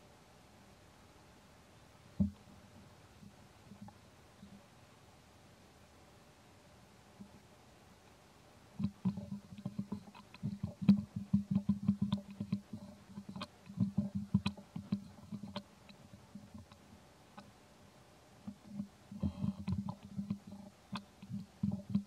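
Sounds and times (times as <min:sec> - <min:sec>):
baby monkey sucking: 0:08.8 - 0:16.8, 0:18.5 - 0:22.0.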